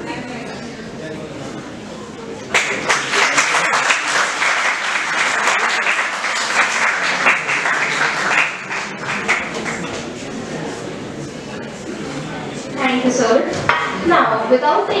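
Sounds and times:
audience applauding: 0:02.5 - 0:10.1.

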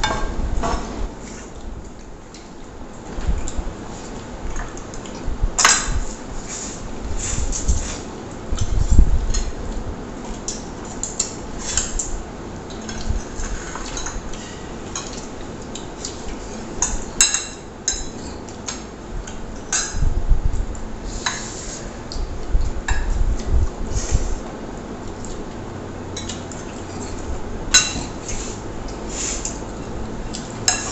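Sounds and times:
eating noises: 0:06.0 - 0:17.2, 0:18.1 - 0:30.9.

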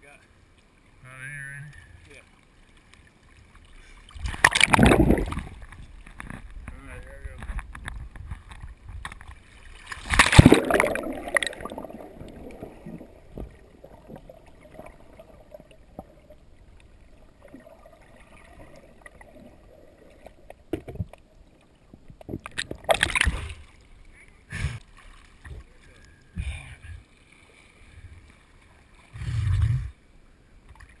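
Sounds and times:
river water splashing: 0:02.0 - 0:06.4, 0:09.3 - 0:20.5, 0:22.4 - 0:26.1
water gurgling: 0:03.2 - 0:27.1.

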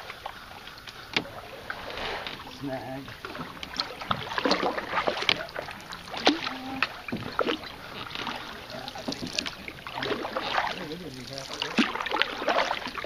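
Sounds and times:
canoe paddle splashing water: 0:00.0 - 0:13.0.

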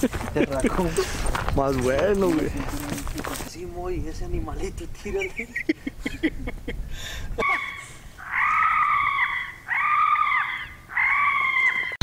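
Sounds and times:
animal squealing: 0:07.4 - 0:12.0.

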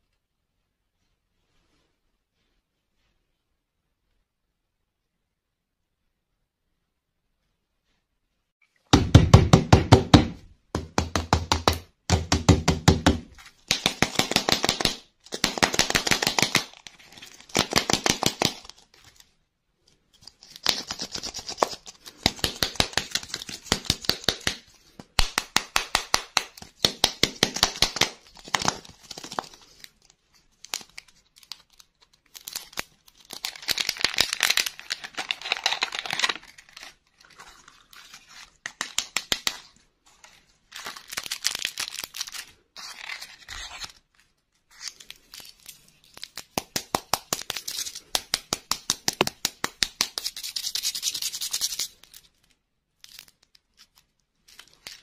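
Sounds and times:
foil wrapper crinkling and tearing: 0:30.6 - 0:39.7, 0:40.6 - 0:46.6, 0:50.2 - 0:55.0.

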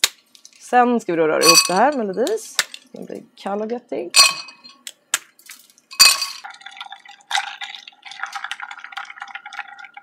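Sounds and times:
spoon stirring ice in glass: 0:01.4 - 0:02.1, 0:05.9 - 0:10.0
ice cubes clattering into glass: 0:05.9 - 0:10.0.

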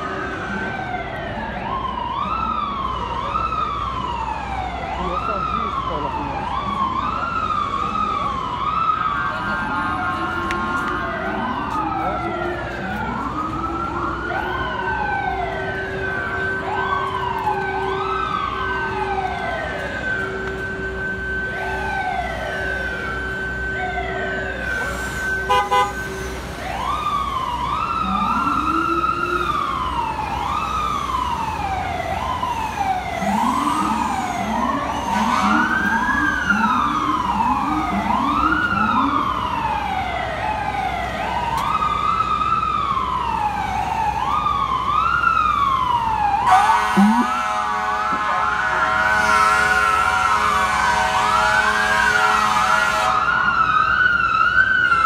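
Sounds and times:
deep siren sweeping up: 0:00.0 - 0:55.0
emergency sirens wailing: 0:00.0 - 0:55.0
long horn blast: 0:25.4 - 0:26.3, 0:34.8 - 0:36.0, 0:46.5 - 0:53.3.

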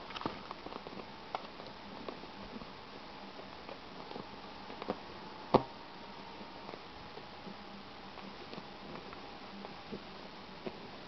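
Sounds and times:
faint steady whine: 0:00.0 - 0:11.0.

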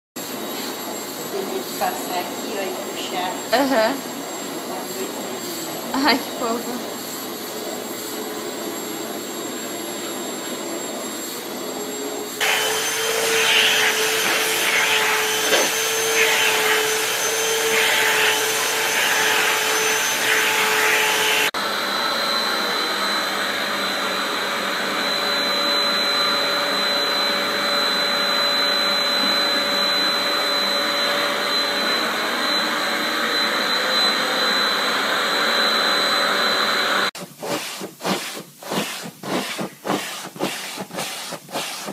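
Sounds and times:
vacuum cleaner motor whine: 0:00.2 - 0:37.2
vacuum high steady whistle: 0:09.1 - 0:37.1.

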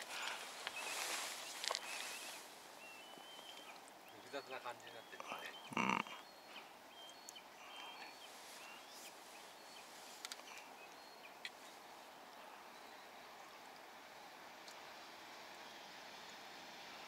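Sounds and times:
faint outdoor hiss: 0:00.0 - 0:17.0
faint high chirps: 0:00.3 - 0:11.5.

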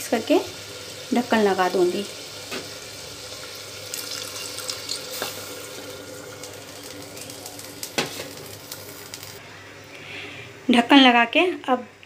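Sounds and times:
food sizzling: 0:00.0 - 0:09.4
water splashing into pot: 0:02.4 - 0:09.2.

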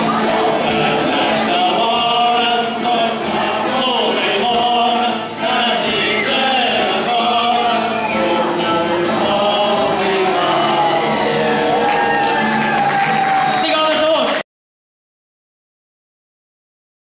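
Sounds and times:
guitar accompaniment: 0:00.0 - 0:14.4
men singing together: 0:00.5 - 0:12.2.

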